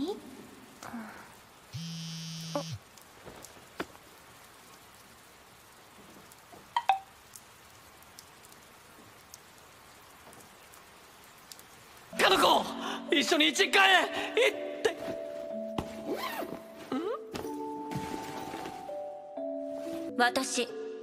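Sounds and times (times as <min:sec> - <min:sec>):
light rain falling: 0:00.0 - 0:20.1
phone buzzing: 0:01.8 - 0:02.8
water drips: 0:02.6 - 0:13.0.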